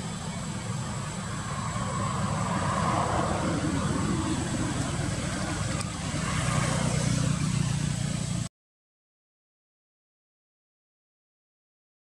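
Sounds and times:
vehicle engine running: 0:00.0 - 0:08.5.

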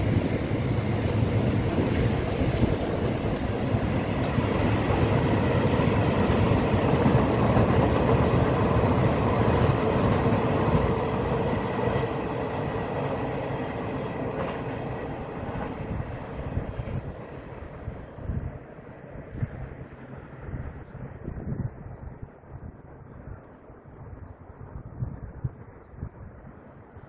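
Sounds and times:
freight train rolling past: 0:00.0 - 0:23.3.

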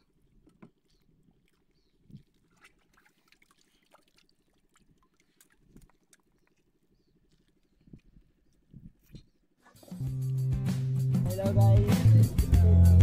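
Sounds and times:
water trickling at boat side: 0:00.0 - 0:09.3.

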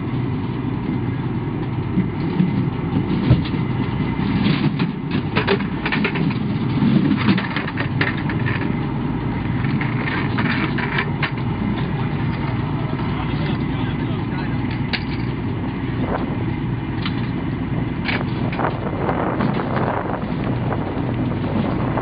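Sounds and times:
armored vehicle engine idling: 0:00.0 - 0:22.0
metallic clanks and rattles: 0:02.1 - 0:08.8, 0:09.5 - 0:13.7, 0:14.6 - 0:15.4, 0:17.0 - 0:17.4, 0:18.0 - 0:20.5.

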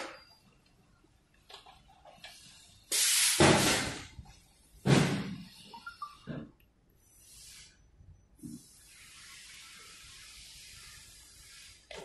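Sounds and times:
compressed air hissing: 0:02.9 - 0:04.1, 0:08.6 - 0:11.9.

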